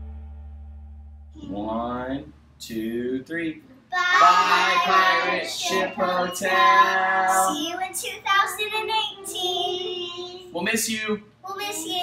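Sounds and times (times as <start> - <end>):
children and adults singing: 4.0 - 8.0.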